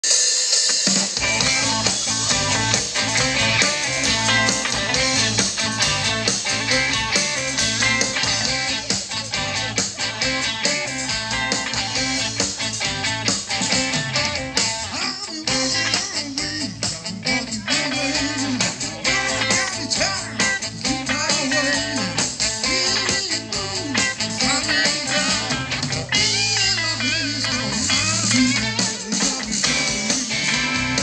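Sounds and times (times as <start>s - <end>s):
drums keeping a steady beat: 0.0s - 31.0s
electric guitar: 0.0s - 31.0s
bass: 0.8s - 31.0s.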